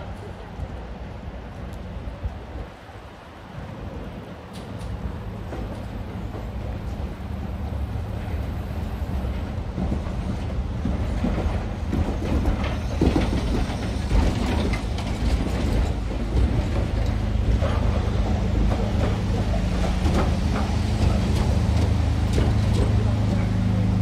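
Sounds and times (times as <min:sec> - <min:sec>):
train coaches rumbling past: 0:00.0 - 0:24.0
wheels clicking and knocking: 0:09.7 - 0:24.0.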